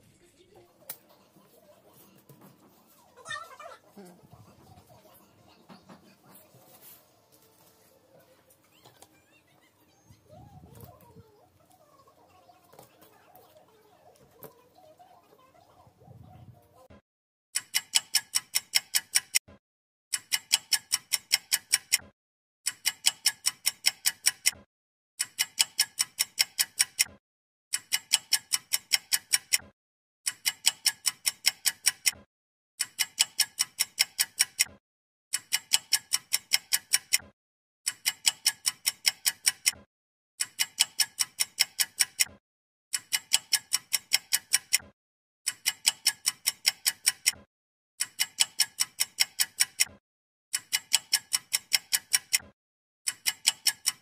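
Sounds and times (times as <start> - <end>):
bright ringing ticks: 50.6 - 52.4.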